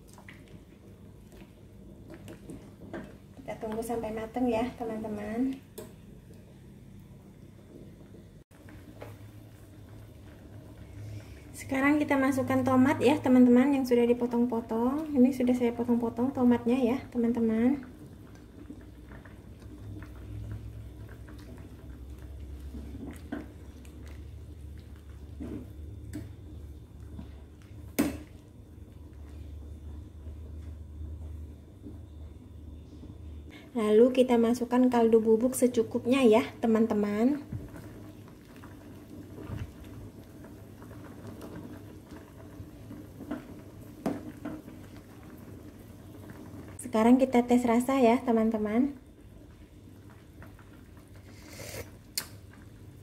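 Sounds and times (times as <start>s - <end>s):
faint steady hum: 0.0s - 53.0s
soup simmering: 0.0s - 53.0s
ladle stirring soup in a pot: 17.8s - 29.5s.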